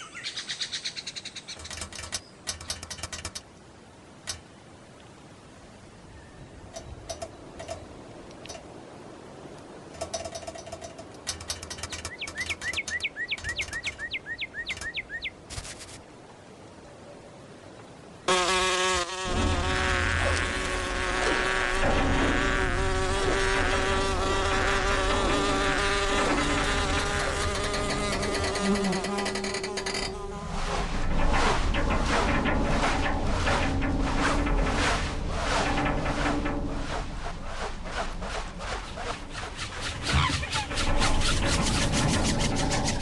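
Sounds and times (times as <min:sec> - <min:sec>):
cartoon fly wings buzzing: 0:18.3 - 0:31.0.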